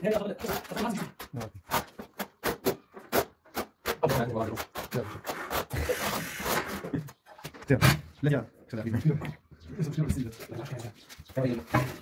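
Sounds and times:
tools scraping over mortar: 0.0s - 8.1s.

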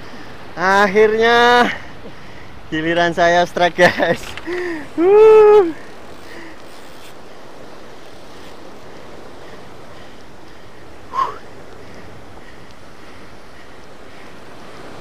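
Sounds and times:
sea surf washing against rocks: 0.0s - 15.0s
wind on microphone: 4.3s - 15.0s.

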